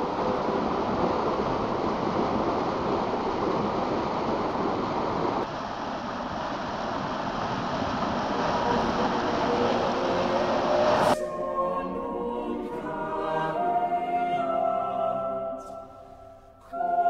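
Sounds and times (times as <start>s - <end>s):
rushing stream water: 0.0s - 13.4s.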